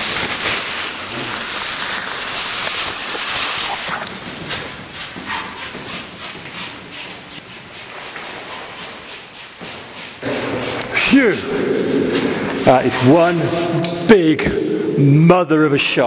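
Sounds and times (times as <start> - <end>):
loud rushing hiss: 0.0 - 4.1, 10.2 - 16.0
clothing and gear rustling: 0.2 - 12.7.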